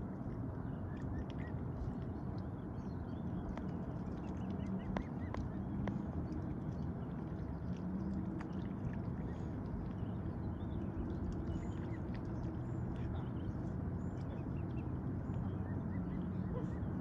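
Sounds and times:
low background rumble: 0.0s - 17.0s
cygnets peeping: 2.8s - 17.0s
bills splashing in water: 3.2s - 16.7s.

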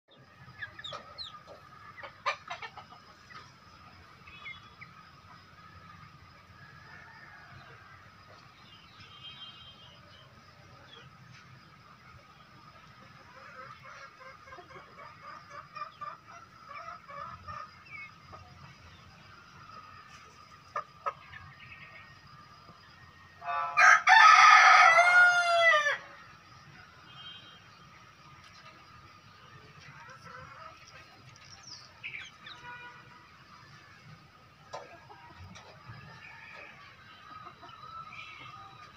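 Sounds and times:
chickens clucking: 0.1s - 8.6s, 10.2s - 23.9s, 27.9s - 32.6s, 33.3s - 38.9s
rooster crowing: 23.4s - 26.1s.

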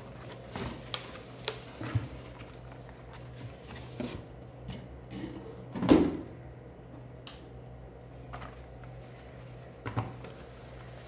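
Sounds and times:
cardboard and bubble wrap rustling: 0.0s - 4.4s, 8.8s - 11.0s.

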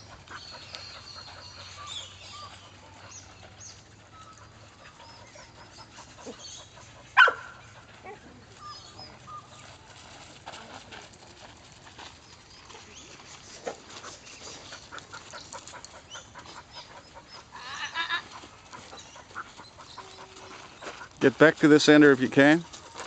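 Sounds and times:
dog barking: 7.2s - 8.2s.

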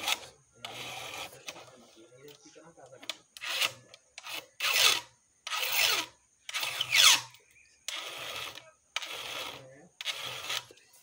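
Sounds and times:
file rasping on chainsaw chain: 0.0s - 1.5s, 3.4s - 7.3s, 7.9s - 10.8s.

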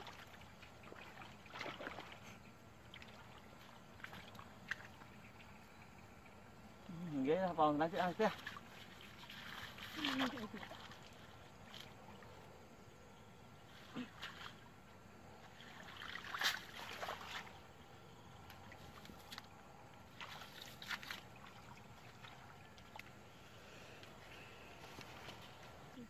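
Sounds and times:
water splashing and dripping: 0.0s - 5.6s, 7.7s - 12.4s, 15.4s - 17.7s, 18.4s - 23.3s.

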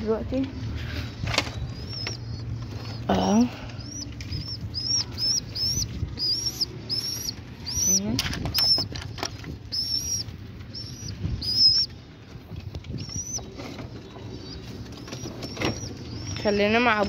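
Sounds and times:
pigeon cooing: 1.3s - 11.9s, 12.9s - 17.0s
wings flapping: 4.0s - 16.2s.

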